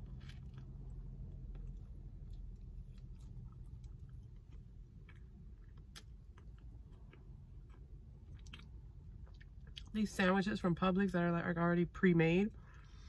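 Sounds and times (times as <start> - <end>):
person chewing: 0.0 - 9.9
faint low rumble: 0.0 - 13.0.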